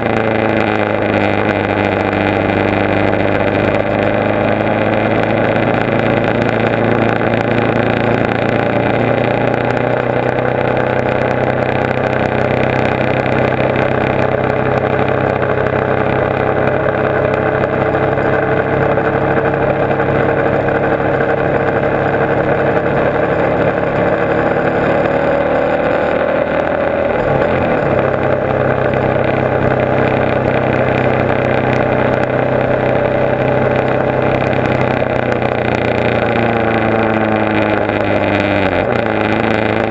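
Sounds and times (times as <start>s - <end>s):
motorcycle engine running: 0.0s - 39.9s.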